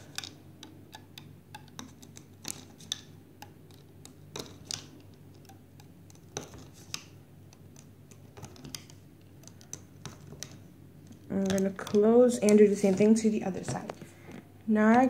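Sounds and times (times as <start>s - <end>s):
metal hook clicking on plastic pegs: 0.0s - 13.0s.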